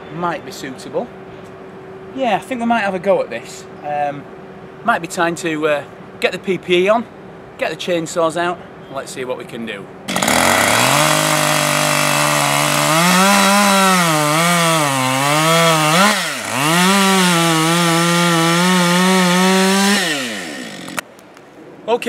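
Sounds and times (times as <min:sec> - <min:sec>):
chainsaw cutting log: 0:10.1 - 0:21.0.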